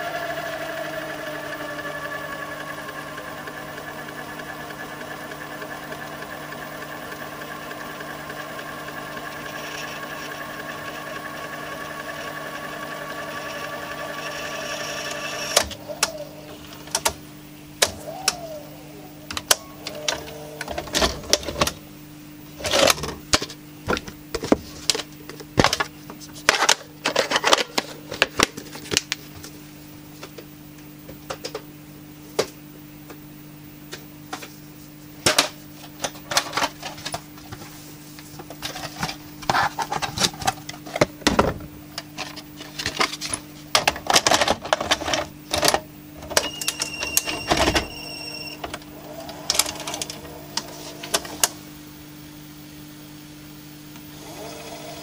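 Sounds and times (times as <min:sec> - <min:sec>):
steady low hum: 0:00.0 - 0:55.0
short motor whirr: 0:08.6 - 0:16.9, 0:46.4 - 0:51.6.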